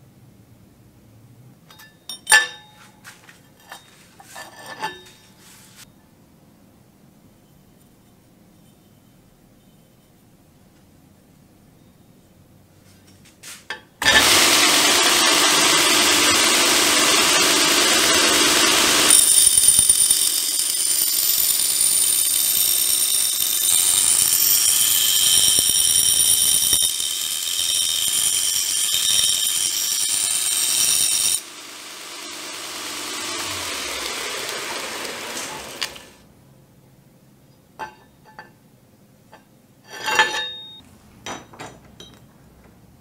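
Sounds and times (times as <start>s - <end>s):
axe head screeching on grinder belt: 14.0s - 36.2s, 39.9s - 40.8s
belt grinder running: 14.0s - 36.2s.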